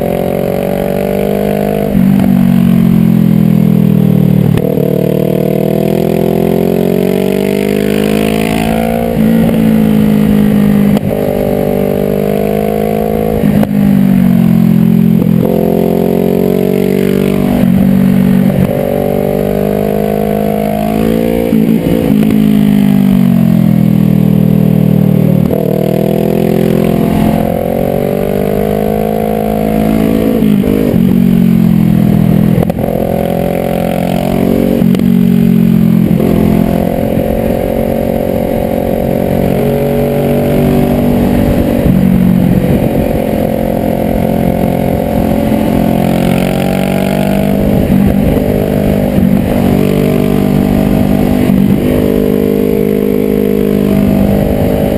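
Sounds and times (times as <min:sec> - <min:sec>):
motorcycle engine revving: 0:00.0 - 0:54.9
wind rush: 0:39.6 - 0:52.5.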